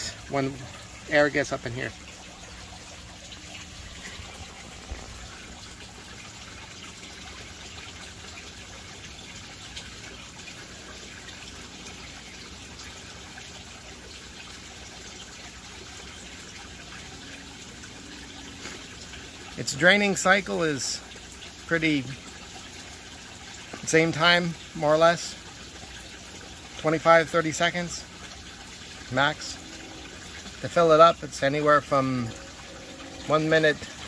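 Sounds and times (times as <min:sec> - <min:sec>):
water trickling: 0:00.0 - 0:34.0.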